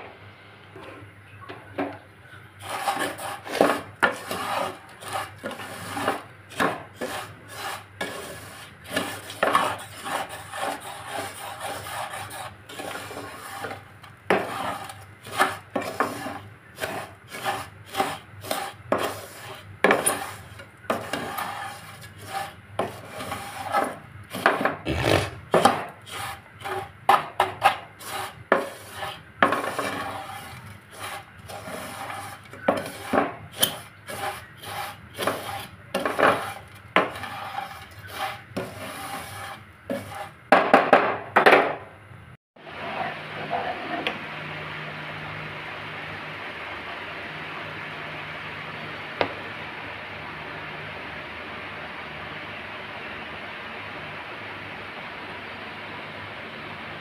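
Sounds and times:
utensil scraping a metal pot: 0:02.6 - 0:40.5.

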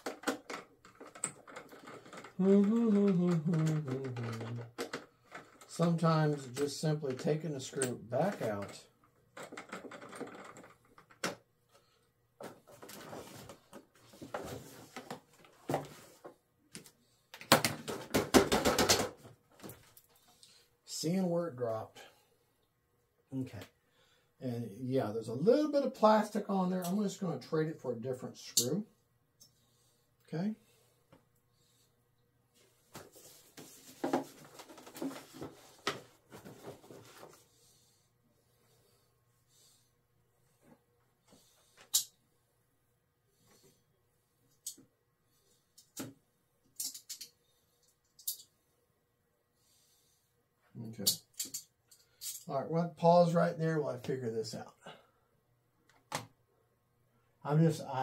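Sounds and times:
model parts knocking and rubbing: 0:33.0 - 0:37.4.

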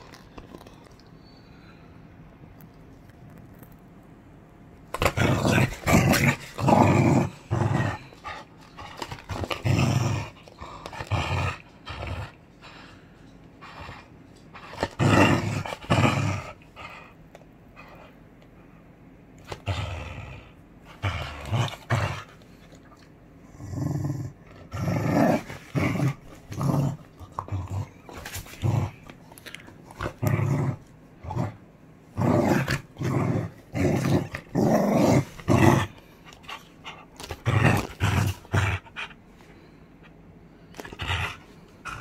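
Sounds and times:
dog growling: 0:04.9 - 0:13.0, 0:13.6 - 0:17.2, 0:19.4 - 0:39.2, 0:40.8 - 0:42.0.

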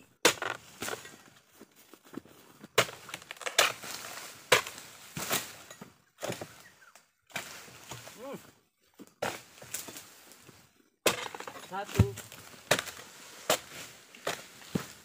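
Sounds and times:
blade chopping palm fronds: 0:00.2 - 0:01.0, 0:02.8 - 0:06.6, 0:11.0 - 0:15.0.

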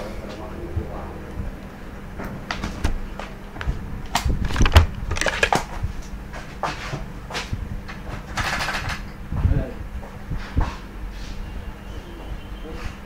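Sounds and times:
objects knocking and clattering: 0:04.4 - 0:05.8.

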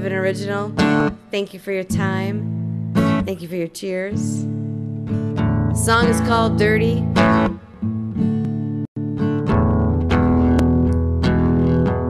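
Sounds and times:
guitar chords strummed: 0:04.4 - 0:12.0.

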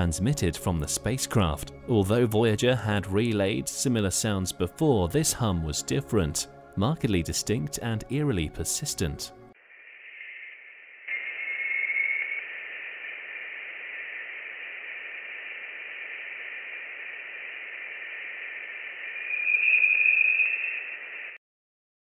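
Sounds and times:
radio static hiss: 0:08.5 - 0:21.4
faint tone: 0:09.7 - 0:21.4.

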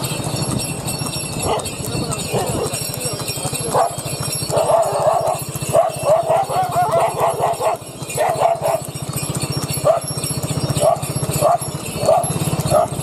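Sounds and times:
motorbike engine running: 0:00.0 - 0:13.0
dog yapping: 0:03.7 - 0:08.9, 0:09.8 - 0:10.1, 0:10.8 - 0:13.0.

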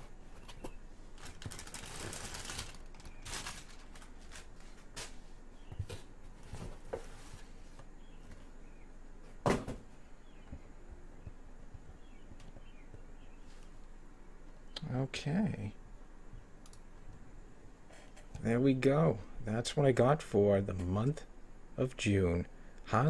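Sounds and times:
plastic film crinkling: 0:01.1 - 0:05.1.

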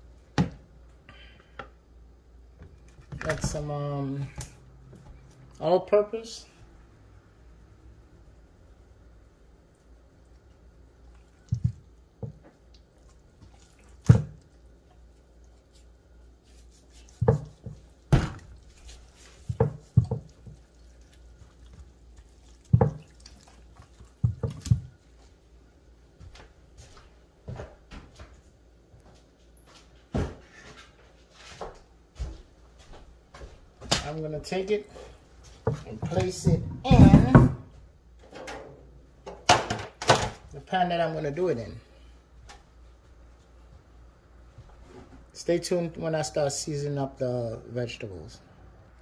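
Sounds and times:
soft knocks and wet thuds: 0:00.3 - 0:00.7, 0:11.2 - 0:15.8, 0:16.4 - 0:25.4, 0:31.6 - 0:37.9.

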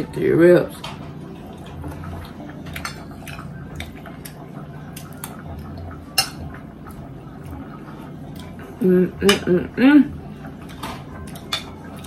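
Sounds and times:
steady low hum: 0:00.0 - 0:12.0
wet chewing: 0:01.4 - 0:06.0.

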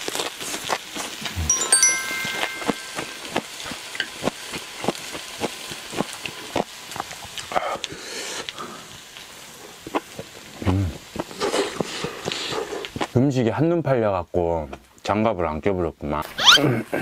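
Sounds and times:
meat sizzling on griddle: 0:00.0 - 0:01.2, 0:03.4 - 0:13.2.

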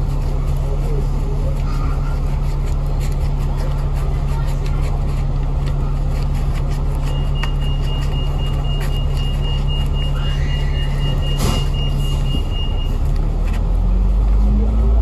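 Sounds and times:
bus engine humming: 0:00.0 - 0:15.0
high-pitched electronic beep tone: 0:07.1 - 0:13.0.

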